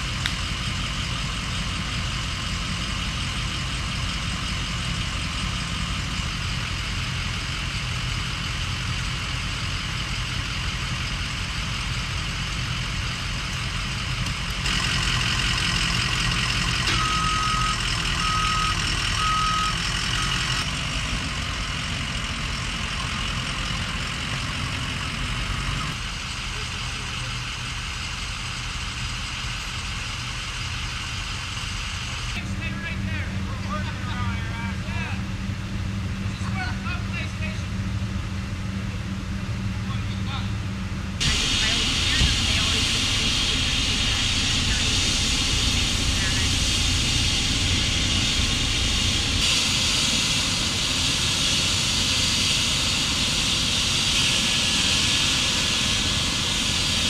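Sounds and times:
engine idling rumble: 0:00.0 - 0:57.0
reversing alarm beeps: 0:14.8 - 0:20.6.

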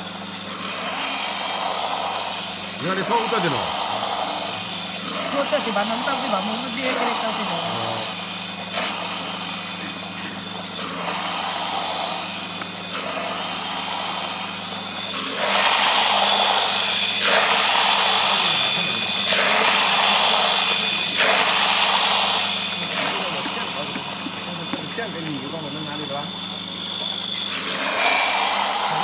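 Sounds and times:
colloid mill motor hum: 0:00.0 - 0:29.0
water from hose rushing into hopper: 0:00.0 - 0:29.0.

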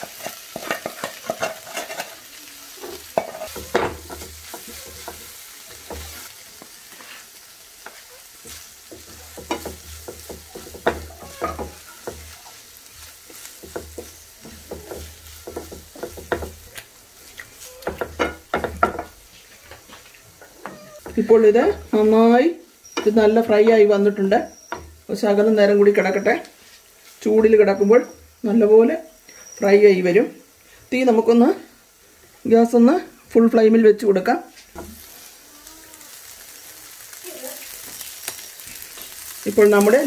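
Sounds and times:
spatula scraping a pan: 0:00.0 - 0:21.4
food sizzling in a frying pan: 0:00.0 - 0:40.0.

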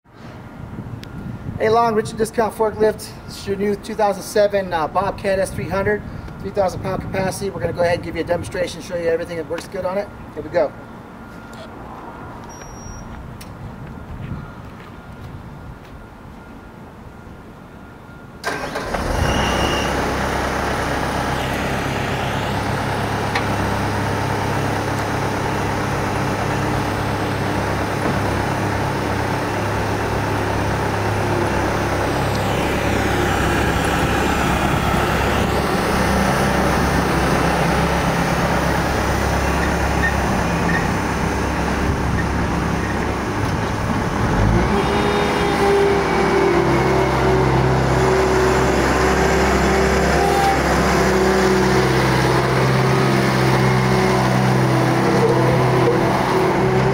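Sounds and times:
diesel engine starting and running: 0:18.3 - 0:56.9.

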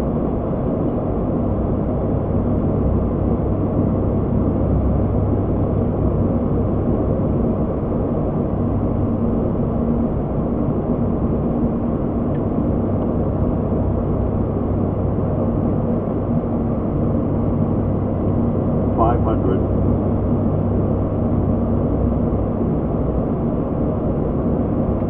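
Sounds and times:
constant low hum: 0:00.0 - 0:25.0
turboprop engines droning: 0:00.0 - 0:25.0
higher hum: 0:18.8 - 0:20.0.

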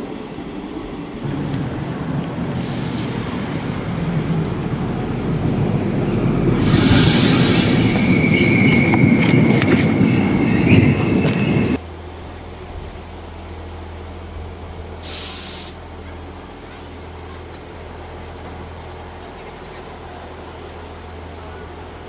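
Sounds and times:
train rumbling past: 0:00.0 - 0:15.1
metallic wheel squeal: 0:06.6 - 0:11.8
brief hiss: 0:15.0 - 0:15.8.

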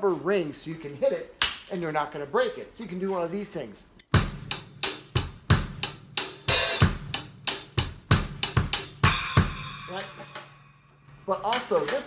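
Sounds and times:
tambourine jingling: 0:01.4 - 0:02.4
drum kit groove: 0:01.4 - 0:02.5, 0:04.1 - 0:12.0.

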